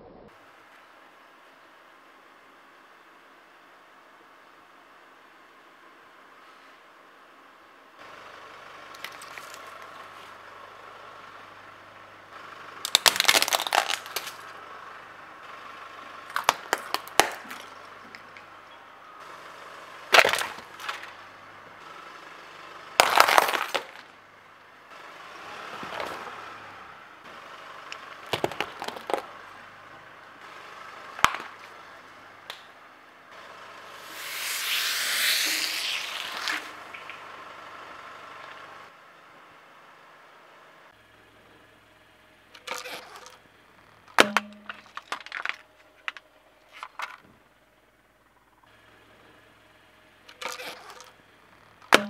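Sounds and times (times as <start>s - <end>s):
objects crushed under car tyre: 12.9s - 14.4s, 16.3s - 17.8s, 20.1s - 21.2s, 23.0s - 24.1s, 28.3s - 29.4s, 31.2s - 31.8s, 42.6s - 43.4s, 44.1s - 47.2s, 50.3s - 51.1s.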